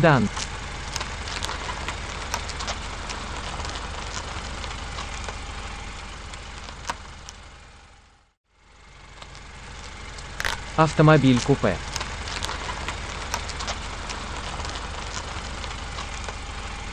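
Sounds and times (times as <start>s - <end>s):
car engine running: 0.0s - 16.9s
scattered clicks: 0.2s - 5.4s, 9.2s - 16.4s.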